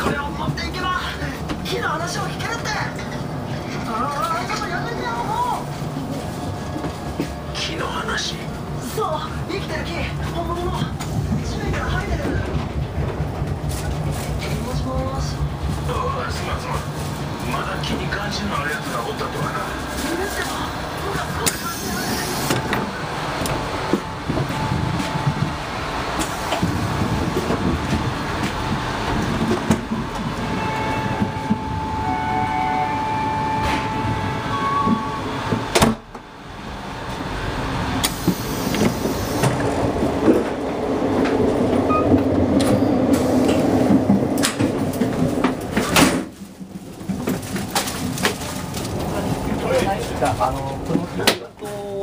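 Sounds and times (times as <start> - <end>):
train wheels rumbling on rail: 0.0 - 52.0.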